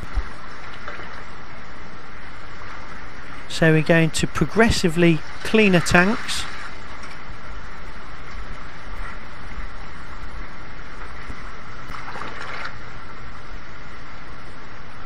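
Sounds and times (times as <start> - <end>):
water churning and splashing: 0.0 - 13.6
water pouring off metal: 11.9 - 12.8.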